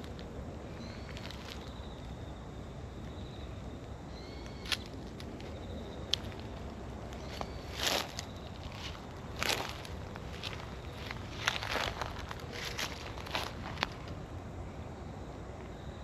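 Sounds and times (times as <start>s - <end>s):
steady low background noise: 0.0s - 16.0s
rustle in grass: 7.1s - 14.2s.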